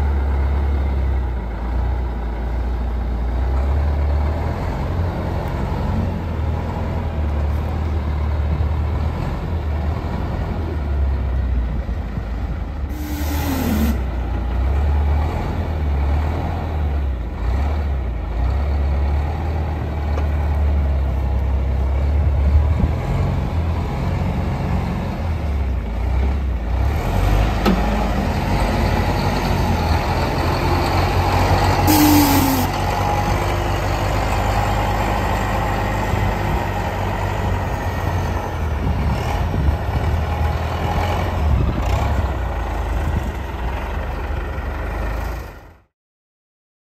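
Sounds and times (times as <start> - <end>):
diesel engine idling: 0.0 - 45.9.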